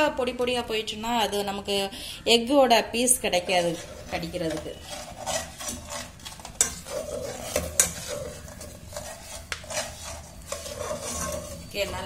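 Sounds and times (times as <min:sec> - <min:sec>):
eggs sizzling in oil: 0:03.0 - 0:12.0
spatula scraping a pan: 0:03.0 - 0:12.0.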